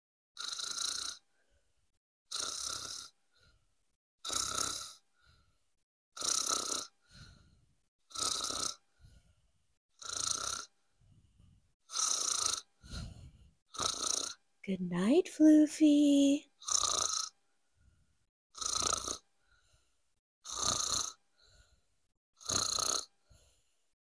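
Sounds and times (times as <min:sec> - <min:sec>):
toy cat snoring: 0:00.4 - 0:01.7, 0:02.3 - 0:14.4, 0:15.4 - 0:17.4, 0:18.5 - 0:23.9
faint breath out: 0:07.0 - 0:07.6, 0:12.8 - 0:13.5.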